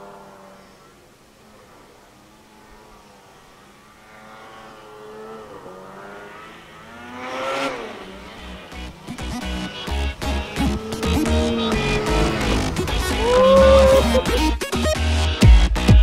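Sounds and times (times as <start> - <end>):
snowmobile engine revving: 0.0 - 15.4
electronic music with heavy bass: 8.8 - 16.0.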